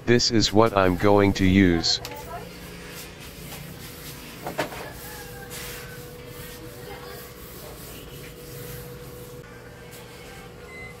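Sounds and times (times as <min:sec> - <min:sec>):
tissue wiping over glass: 0:02.8 - 0:09.4.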